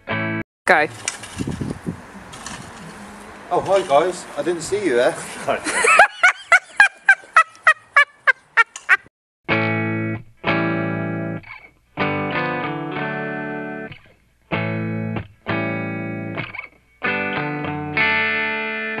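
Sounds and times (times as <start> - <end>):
distorted electric guitar chords: 9.5 - 14.0, 14.6 - 19.0.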